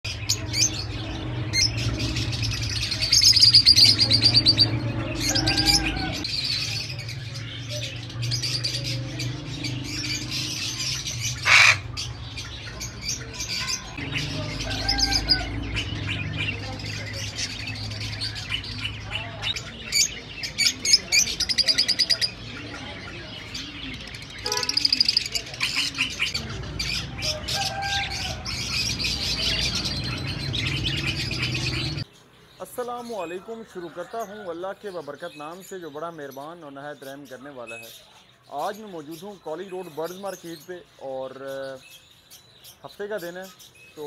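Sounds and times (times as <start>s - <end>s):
birds chirping and chattering: 0.0s - 44.0s
parrot squawk: 11.3s - 12.0s.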